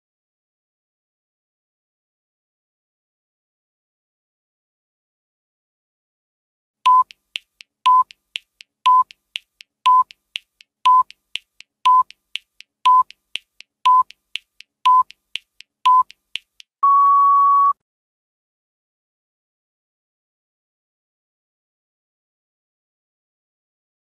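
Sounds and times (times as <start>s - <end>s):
short electronic beeps: 6.9s - 7.1s, 7.9s - 8.1s, 8.9s - 9.1s, 9.9s - 10.1s, 10.9s - 11.1s, 11.9s - 12.1s, 12.9s - 13.1s, 13.9s - 14.1s, 14.9s - 15.1s, 15.9s - 16.1s, 16.8s - 17.8s
soft timer ticks: 6.9s - 16.7s
long electronic beep: 16.8s - 17.8s.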